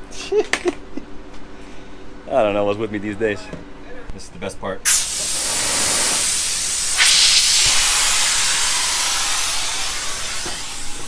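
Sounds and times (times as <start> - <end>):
compressed air hissing: 4.9 - 11.0.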